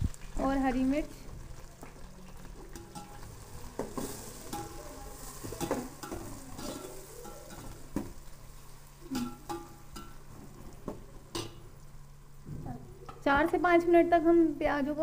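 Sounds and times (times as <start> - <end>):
onions sizzling in hot oil: 0.0 - 15.0
ladle scraping metal pot: 2.7 - 7.9.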